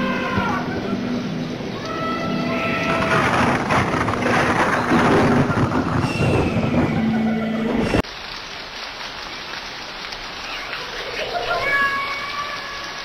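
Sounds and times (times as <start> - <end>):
heavy sea: 0.0 - 8.0
rushing wind: 0.0 - 8.0.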